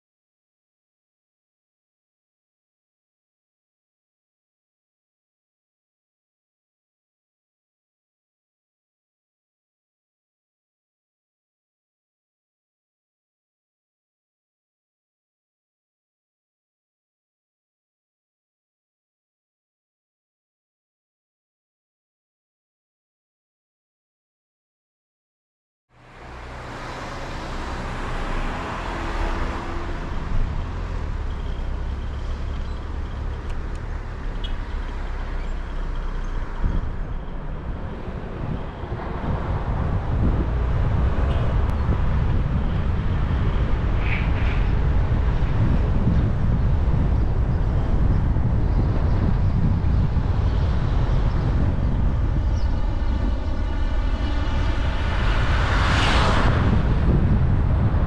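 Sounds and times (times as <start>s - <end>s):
car engine and tyre noise: 25.9s - 58.0s.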